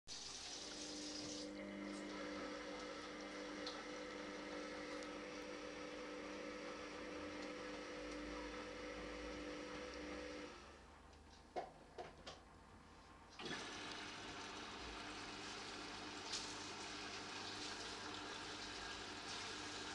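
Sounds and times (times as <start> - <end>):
washing machine motor hum: 0.1 - 11.1, 13.2 - 19.9
water and laundry sloshing: 13.4 - 19.9.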